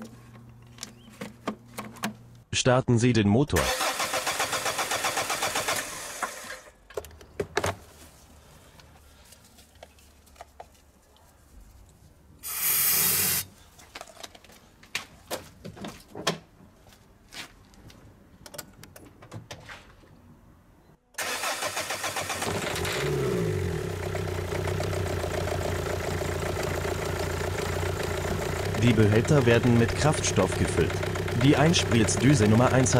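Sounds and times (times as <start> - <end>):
diesel engine cranking: 3.6 - 6.7, 21.2 - 32.9
loud hiss: 12.4 - 13.5
diesel engine idling: 23.3 - 32.9.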